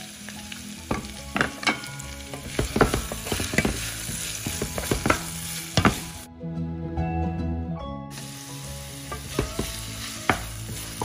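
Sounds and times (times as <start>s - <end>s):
onions sizzling in oil: 0.0s - 6.3s, 8.1s - 11.0s
spatula scraping and knocking pan: 0.9s - 6.2s, 9.1s - 11.0s.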